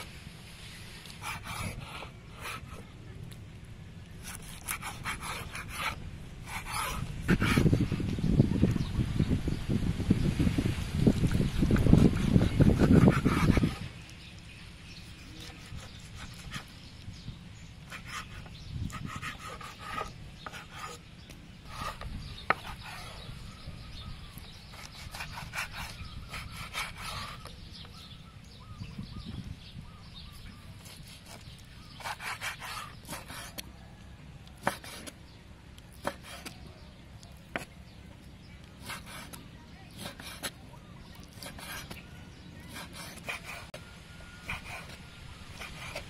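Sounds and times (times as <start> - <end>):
knife slicing meat: 1.1 - 2.8, 4.2 - 7.9, 15.1 - 16.8, 17.9 - 21.0, 24.5 - 27.6, 30.8 - 33.7, 34.6 - 35.2, 35.9 - 36.6, 38.8 - 42.0, 42.6 - 43.8, 44.4 - 46.0.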